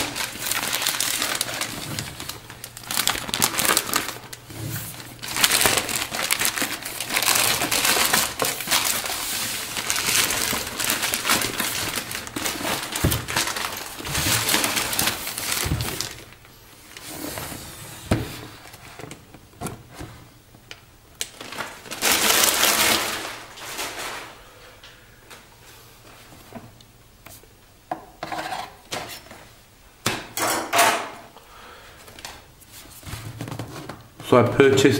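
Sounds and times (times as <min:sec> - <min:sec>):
packaging rustling and crinkling: 0:00.0 - 0:20.1, 0:20.7 - 0:24.4.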